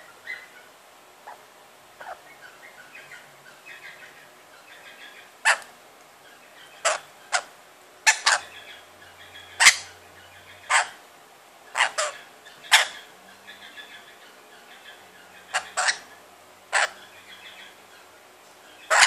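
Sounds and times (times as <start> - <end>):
parrot chattering softly: 2.0 - 3.1, 3.7 - 5.7, 6.6 - 10.0, 10.6 - 11.0, 11.7 - 18.0
parrot harsh screeches: 8.1 - 8.5, 11.7 - 13.0, 15.5 - 16.0, 16.7 - 17.0.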